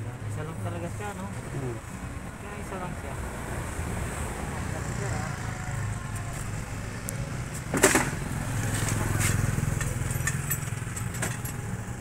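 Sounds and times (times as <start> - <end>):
engine hum: 0.0 - 12.0
metal tools clinking: 8.8 - 11.8.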